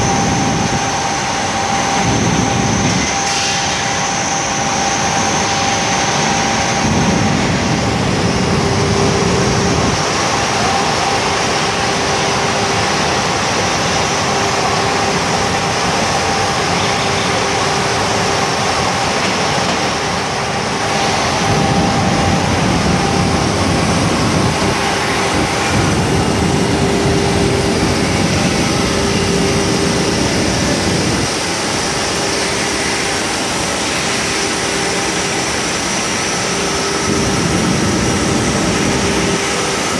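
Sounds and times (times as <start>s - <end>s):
grinding machinery noise: 0.0s - 39.9s
spindle whine: 0.0s - 39.9s.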